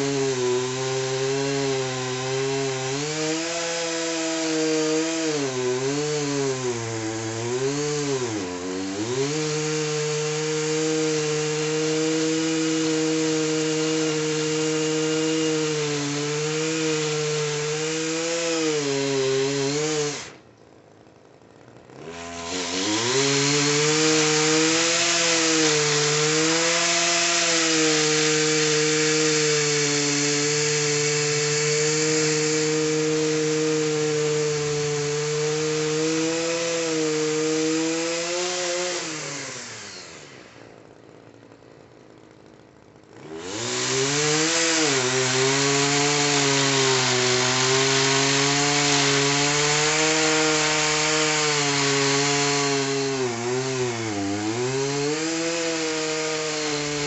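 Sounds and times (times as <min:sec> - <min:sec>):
pole saw engine revving: 0:00.0 - 0:20.4, 0:21.6 - 0:40.8, 0:43.0 - 0:57.0.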